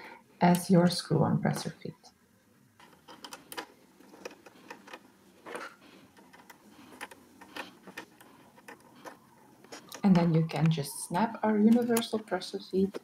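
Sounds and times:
small metal parts clicking: 0:02.8 - 0:10.0.

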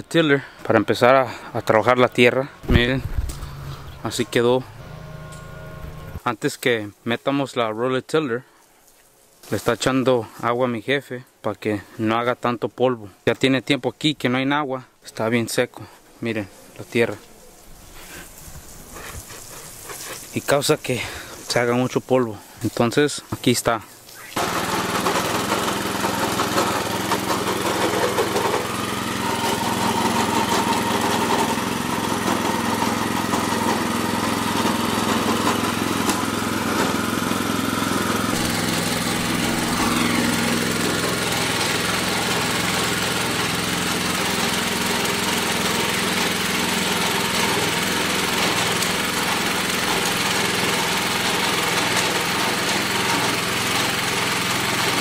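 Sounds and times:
rototiller engine running: 0:00.6 - 0:06.2, 0:24.4 - 0:55.0.

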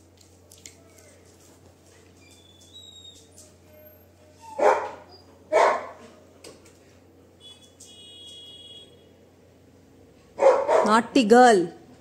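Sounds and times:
dog barking: 0:04.5 - 0:06.1, 0:10.4 - 0:11.0.

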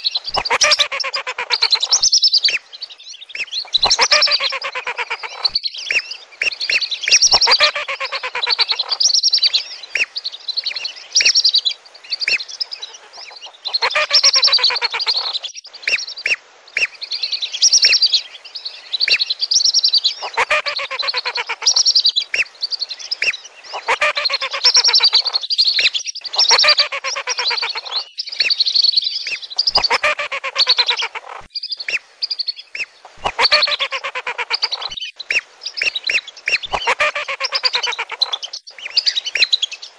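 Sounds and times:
ducks whistling: 0:00.0 - 0:02.6, 0:03.4 - 0:09.0, 0:20.2 - 0:21.8, 0:23.7 - 0:25.4, 0:26.3 - 0:28.6, 0:29.6 - 0:31.5, 0:32.8 - 0:39.6.

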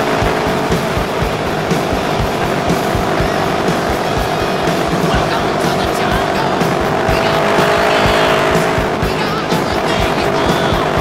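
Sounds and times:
motorcycle engine at steady revs: 0:00.0 - 0:11.0.

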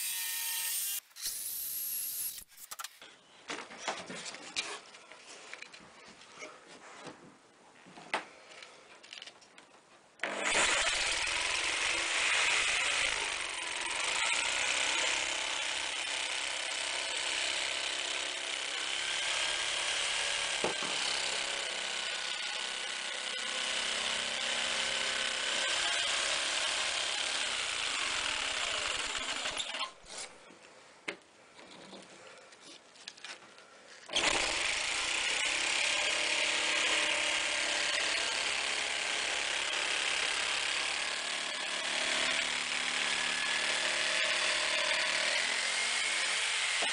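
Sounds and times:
power tool motor whining: 0:00.0 - 0:03.0.

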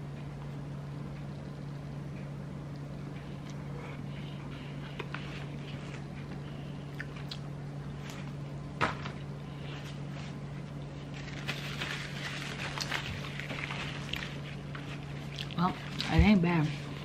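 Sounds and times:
steady low hum: 0:00.0 - 0:17.0
chewing and mouth sounds: 0:04.7 - 0:08.3, 0:12.7 - 0:16.2
paper crinkling: 0:09.9 - 0:17.0.

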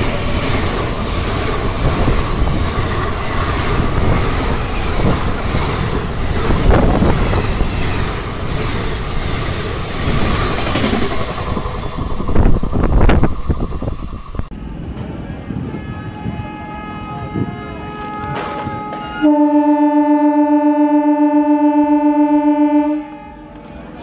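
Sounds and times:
wheels clacking over rail joints: 0:00.0 - 0:13.7
train wheels rumbling on rails: 0:00.0 - 0:19.4.

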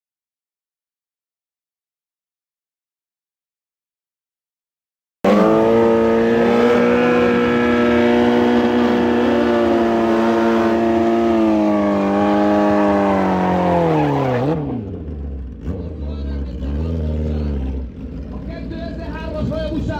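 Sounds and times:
motorcycle engine at high revs: 0:05.2 - 0:19.9.

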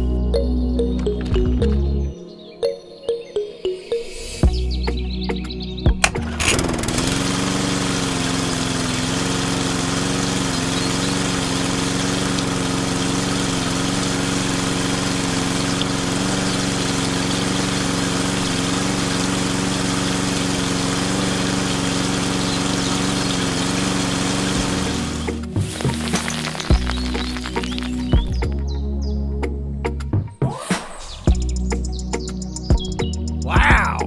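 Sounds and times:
small electric pump motor humming: 0:06.1 - 0:28.5.

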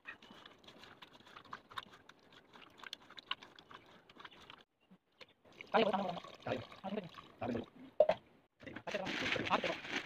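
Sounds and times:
wet squelching of tomato pulp: 0:00.0 - 0:07.5.

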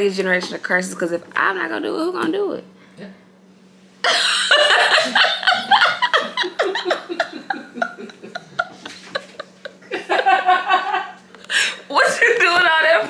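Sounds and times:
steady low hum: 0:00.0 - 0:13.0
people laughing: 0:04.0 - 0:12.4.

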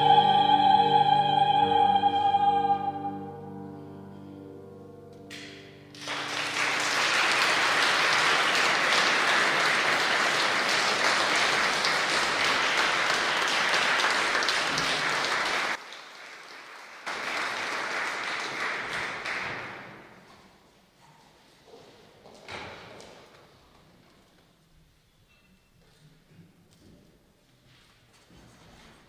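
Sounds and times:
piano and opera singing: 0:00.0 - 0:04.9
audience applause: 0:06.0 - 0:20.0.

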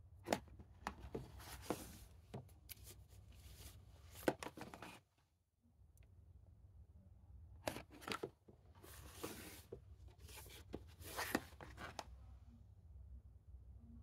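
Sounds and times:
plastic cases scraping: 0:00.3 - 0:02.1, 0:03.5 - 0:05.0, 0:07.7 - 0:12.0.

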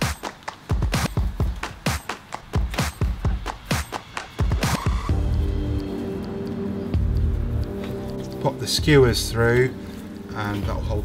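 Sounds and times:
deep kick drums: 0:00.0 - 0:02.0, 0:02.6 - 0:06.2, 0:07.0 - 0:07.8, 0:08.8 - 0:09.4
snare hits: 0:00.0 - 0:05.1
electronic music: 0:00.0 - 0:11.0.

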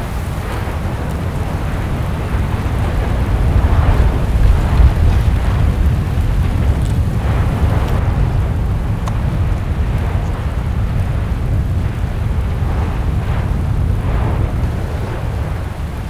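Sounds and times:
volcano rumbling: 0:00.0 - 0:16.0.

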